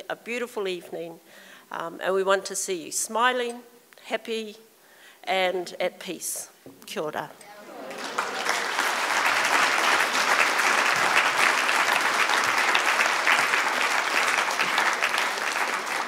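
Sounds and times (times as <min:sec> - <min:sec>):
crowd applauding: 0:07.4 - 0:16.0.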